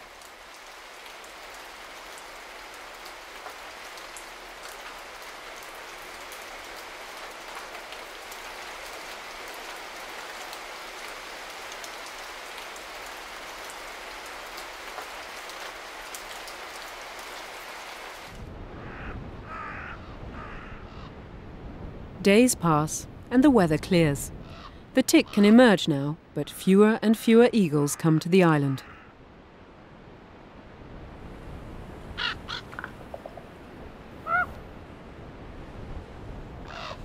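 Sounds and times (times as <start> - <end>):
rain pattering: 0.0 - 20.6, 21.9 - 37.0
low wind rumble: 18.3 - 26.6, 28.8 - 37.0
ravens calling: 18.8 - 21.2, 24.4 - 25.5, 28.8 - 29.2, 32.2 - 33.4, 34.2 - 34.6, 36.7 - 37.0.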